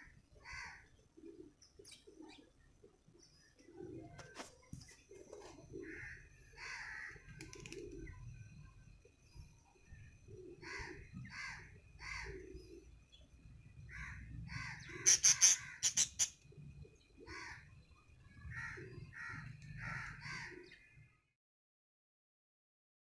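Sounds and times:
bird calling: 10.3s - 13.0s, 13.9s - 16.4s.

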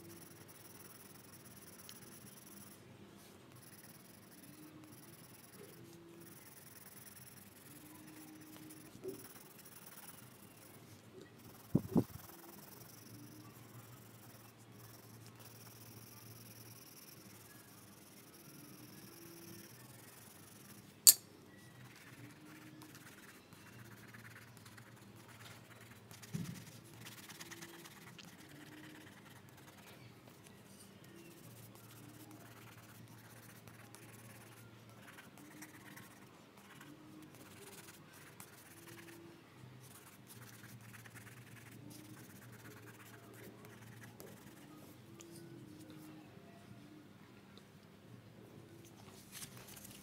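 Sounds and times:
pencil scratching on paper: 0.0s - 20.9s, 21.8s - 30.0s, 31.1s - 39.2s, 39.8s - 45.0s
sharp click: 21.0s - 21.3s.

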